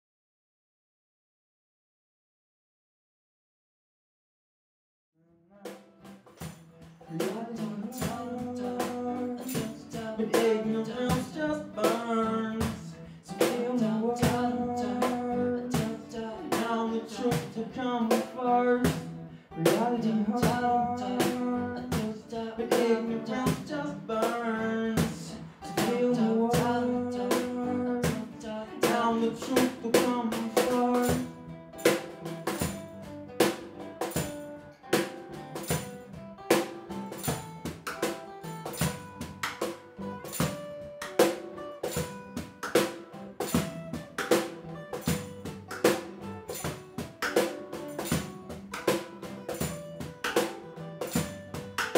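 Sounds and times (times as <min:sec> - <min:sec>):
strummed acoustic guitar: 0:05.5 - 0:51.9
cajon beating quick rhythm: 0:05.7 - 0:51.9
man singing: 0:07.1 - 0:31.4.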